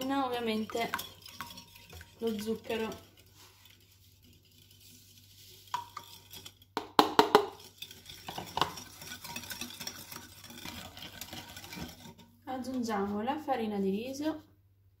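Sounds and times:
whisk knocking on bowl: 0:00.0 - 0:05.0, 0:05.6 - 0:12.1
whisk clattering in ceramic bowl: 0:00.0 - 0:12.3.

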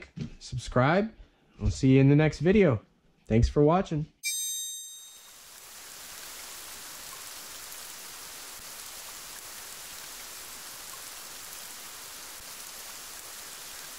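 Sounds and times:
steady rain: 0:05.3 - 0:13.9.

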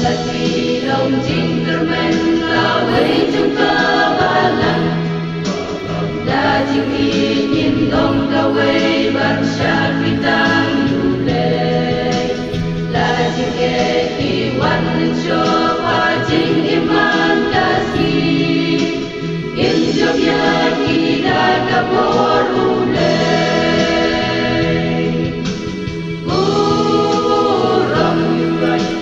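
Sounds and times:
choir singing a hymn: 0:00.0 - 0:29.0.

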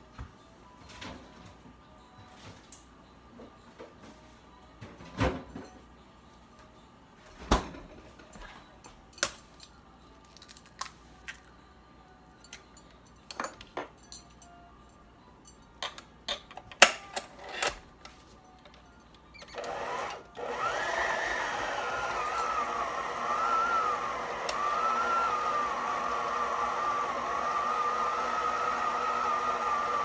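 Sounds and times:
stand mixer motor whining: 0:19.6 - 0:30.0.

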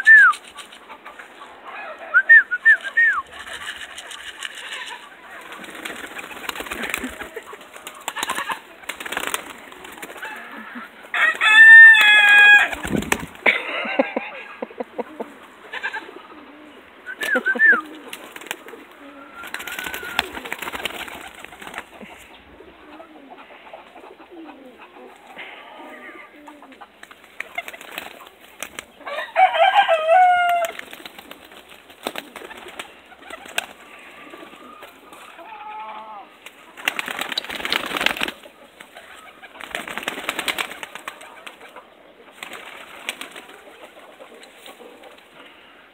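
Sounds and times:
soft pigeon calls: 0:00.0 - 0:29.7, 0:30.3 - 0:45.9
pigeon wings flapping: 0:02.8 - 0:10.4, 0:11.3 - 0:13.5, 0:17.2 - 0:22.1, 0:27.0 - 0:28.9, 0:30.5 - 0:33.9, 0:36.4 - 0:41.7, 0:42.4 - 0:43.9
drawn-out pitched bird calls: 0:14.4 - 0:31.4.

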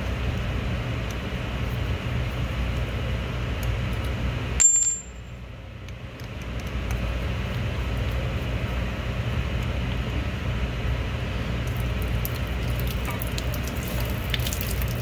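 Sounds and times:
low machinery hum: 0:00.0 - 0:15.0
metal bolt clinking on concrete: 0:04.6 - 0:05.3.

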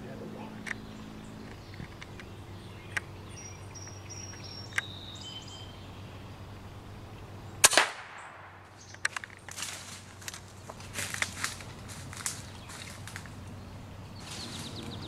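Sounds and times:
sharp clicks: 0:04.2 - 0:04.9, 0:07.6 - 0:09.6
air rifle shot: 0:07.6 - 0:08.6.

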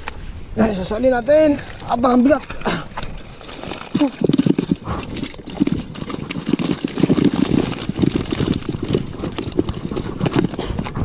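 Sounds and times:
fish flapping and slapping: 0:02.4 - 0:11.0
net and bag rustling: 0:03.1 - 0:11.0.

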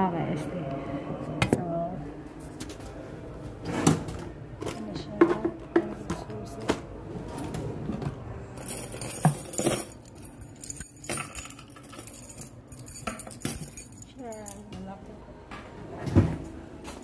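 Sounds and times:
keys jingling: 0:08.6 - 0:14.6.

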